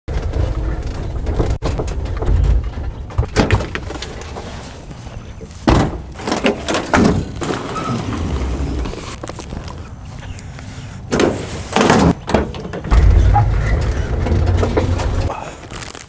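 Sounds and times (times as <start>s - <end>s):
door banging shut: 5.7s - 8.3s, 11.1s - 15.3s
low rumble: 12.9s - 15.4s.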